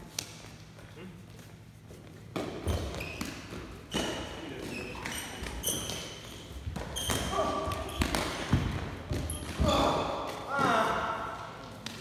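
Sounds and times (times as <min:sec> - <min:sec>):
sneakers squeaking on floor: 0:02.3 - 0:10.0.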